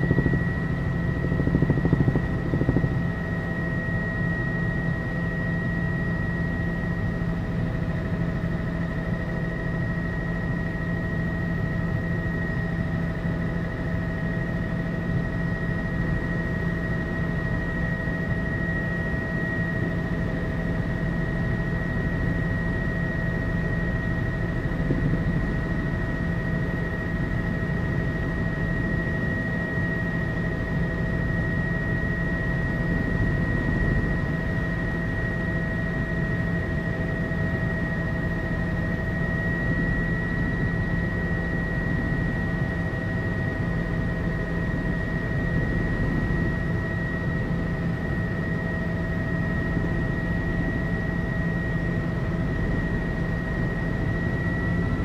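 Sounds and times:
high whine: 0.0 - 5.2, 23.5 - 26.2
helicopter rotor and engine noise: 0.0 - 55.0.

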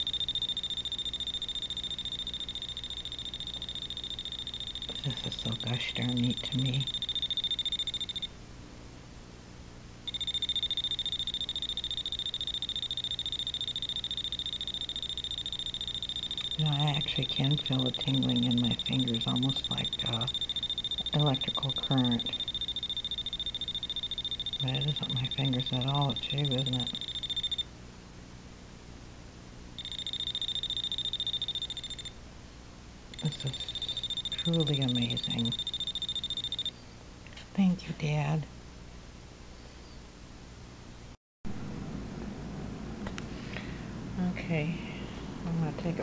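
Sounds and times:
voltage tester alarm beeping: 0.0 - 8.3, 10.1 - 27.7, 29.8 - 32.2, 33.2 - 36.8.

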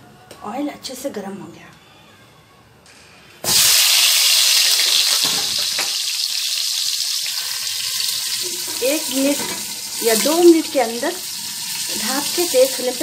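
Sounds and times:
vegetables sizzling in hot oil: 3.4 - 13.0.

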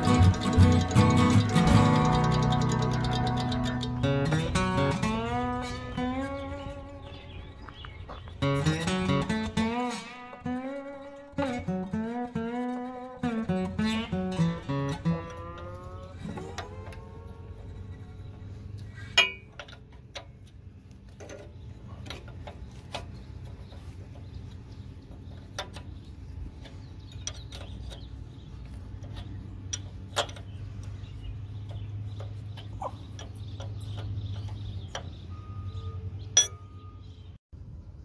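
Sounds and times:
wrench clinking on nut: 0.0 - 4.5, 36.4 - 36.8.

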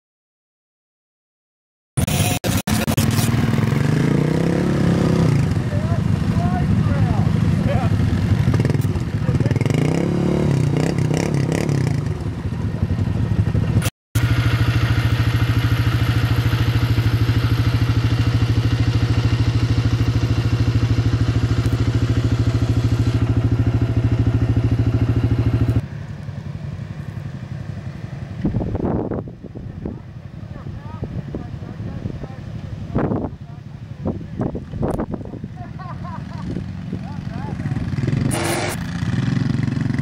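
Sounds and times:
atv engine revving in mud: 2.0 - 25.8, 35.9 - 40.0
quiet engine revving: 2.0 - 29.2, 35.8 - 40.0
atv engine idling: 2.1 - 40.0.

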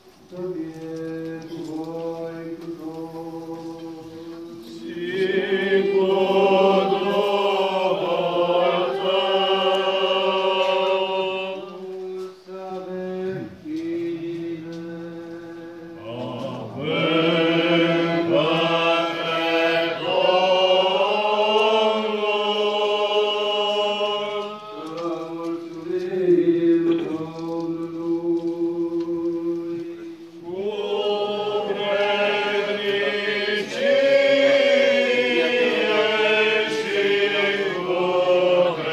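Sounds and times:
voices chanting a melody: 0.3 - 38.9.

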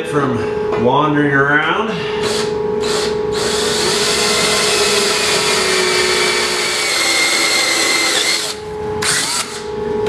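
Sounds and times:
cordless drill boring metal: 2.2 - 9.7.

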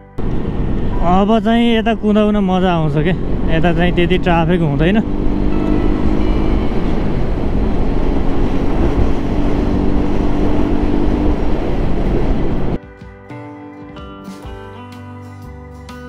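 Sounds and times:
motorcycle running: 0.0 - 12.8
wind noise on microphone: 0.0 - 12.8
guitar music: 0.0 - 16.0.

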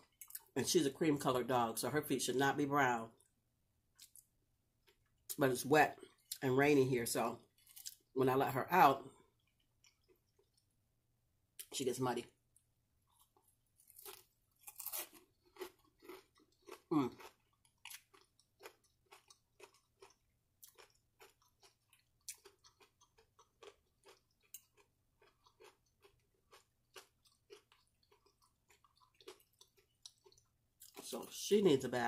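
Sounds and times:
crunchy chewing: 7.4 - 8.0, 9.1 - 10.7, 13.1 - 31.2.

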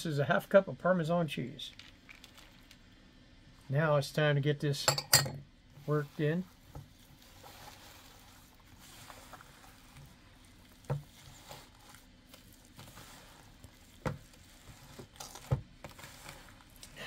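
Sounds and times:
hands squelching meat mixture: 5.7 - 17.0.

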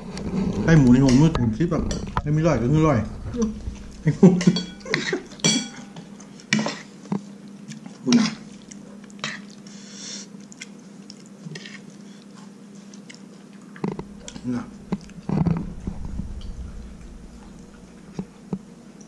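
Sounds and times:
spoon clinking on ceramic plate: 4.4 - 5.9.

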